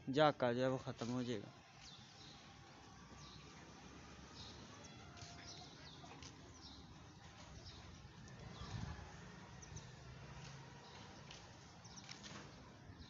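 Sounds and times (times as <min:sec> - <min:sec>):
small birds chirping: 0:01.4 - 0:13.0.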